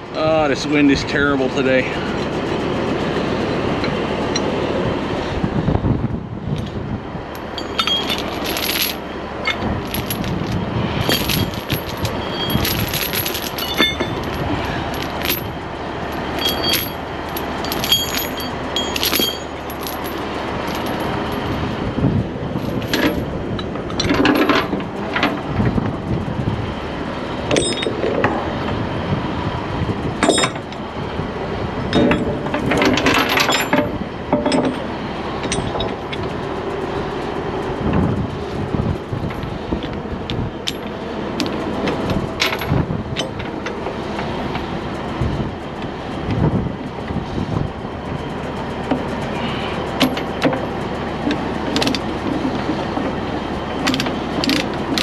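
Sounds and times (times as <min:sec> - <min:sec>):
chain rattling and clanking: 0:07.3 - 0:21.8, 0:22.5 - 0:25.8, 0:27.5 - 0:28.4, 0:30.2 - 0:30.8, 0:31.9 - 0:36.4, 0:39.0 - 0:55.0.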